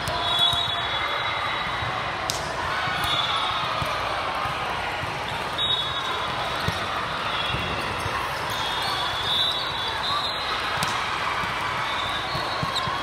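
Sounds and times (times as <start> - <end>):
din of busy sports hall: 0.0 - 13.0
shoes squeaking on court: 11.9 - 13.0.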